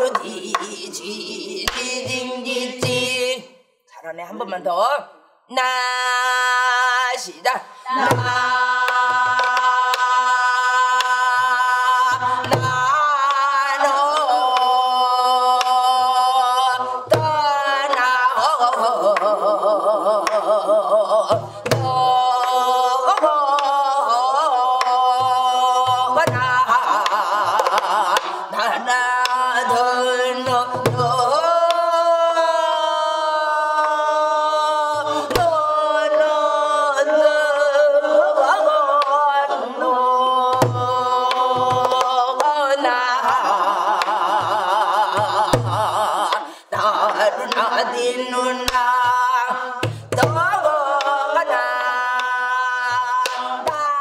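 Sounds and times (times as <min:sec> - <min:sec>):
woman singing with vibrato: 0:00.0 - 0:54.0.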